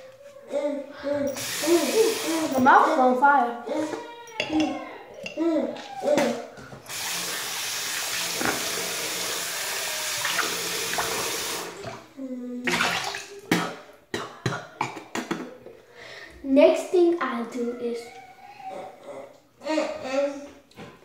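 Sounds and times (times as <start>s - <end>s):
faucet water running: 1.3s - 2.8s, 6.8s - 12.1s.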